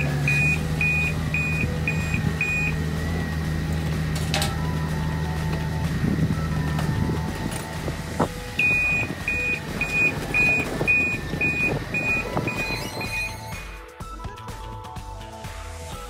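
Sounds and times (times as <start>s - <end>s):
backup alarm beeping: 0.0s - 3.4s, 8.5s - 13.5s
wheel loader engine running: 0.0s - 13.9s.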